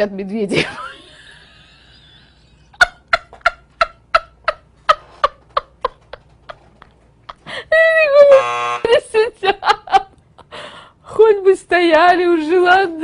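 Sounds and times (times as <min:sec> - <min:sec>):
woman laughing: 0:00.5 - 0:10.6.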